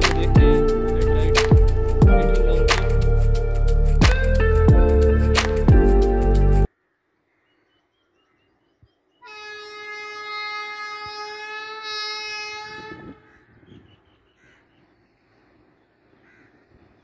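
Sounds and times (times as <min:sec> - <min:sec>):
locomotive horn blast: 0:09.2 - 0:13.4.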